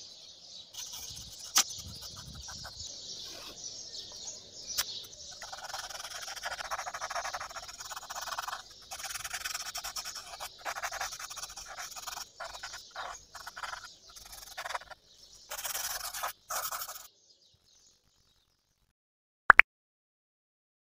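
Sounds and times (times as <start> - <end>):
birds chirping: 0.0 - 18.8
cotton swab rubbing on paper: 0.8 - 3.6, 5.4 - 17.1.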